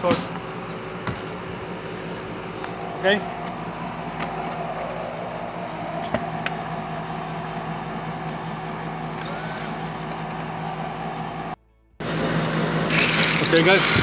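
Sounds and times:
drill boring into concrete: 0:09.1 - 0:10.2, 0:12.8 - 0:14.0.

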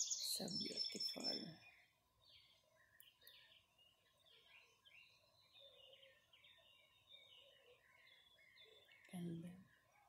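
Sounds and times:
faint birdsong: 0:00.0 - 0:10.0.

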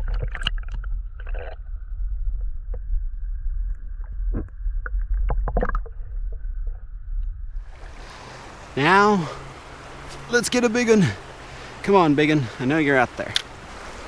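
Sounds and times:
underwater clicks and knocks: 0:00.0 - 0:01.6, 0:04.0 - 0:07.3
muffled underwater river current: 0:00.0 - 0:10.3.

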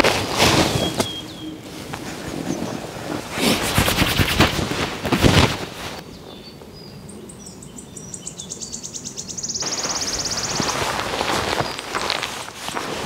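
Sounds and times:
wind rushing over microphone: 0:00.0 - 0:07.2
high bird chirps: 0:06.3 - 0:10.8
fast high bird trill: 0:09.4 - 0:10.8.

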